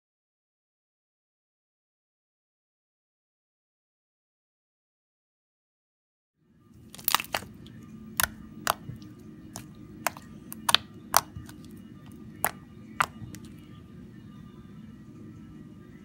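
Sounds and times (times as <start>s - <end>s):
slime clicking and popping: 6.9s - 11.8s, 12.4s - 13.6s.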